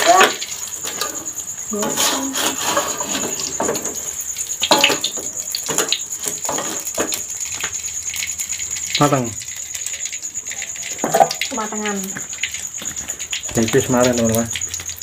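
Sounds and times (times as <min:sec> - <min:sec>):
omelette frying in oil: 0:00.0 - 0:15.0
spatula scraping a wok: 0:00.7 - 0:04.1, 0:05.6 - 0:07.2.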